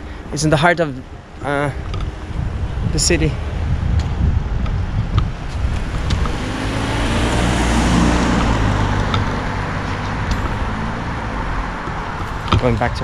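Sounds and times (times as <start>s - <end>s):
car driving past: 5.6s - 12.2s.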